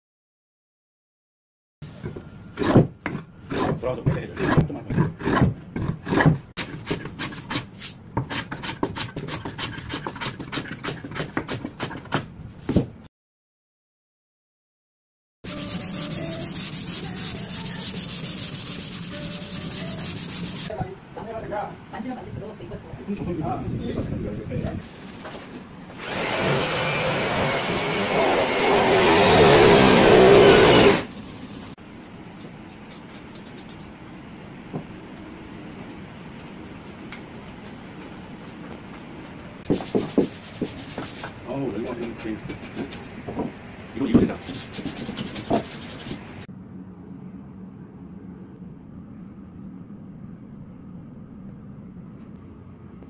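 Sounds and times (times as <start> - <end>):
hand plane shaving wood: 15.5 - 20.7
loud motor-driven machine running: 26.0 - 31.1.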